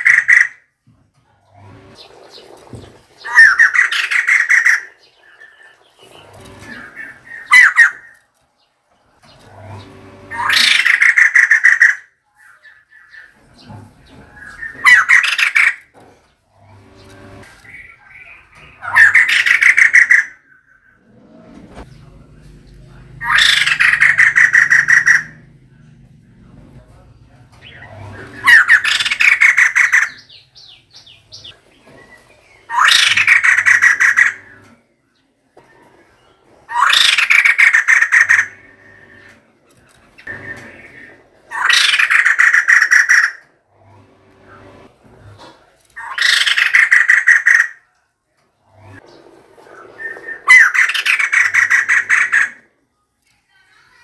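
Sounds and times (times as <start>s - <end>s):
bird calling in rapid bursts: 0.0s - 0.7s, 1.8s - 8.2s, 9.2s - 15.9s, 16.8s - 21.0s, 23.2s - 25.5s, 27.6s - 34.7s, 36.7s - 39.3s, 40.2s - 43.5s, 46.0s - 47.9s, 49.7s - 52.7s.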